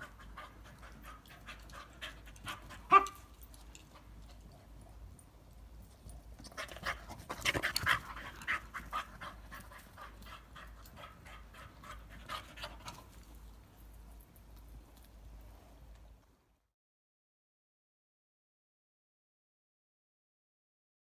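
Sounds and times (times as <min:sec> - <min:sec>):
dog panting fast: 0:00.0 - 0:03.1, 0:06.4 - 0:13.2.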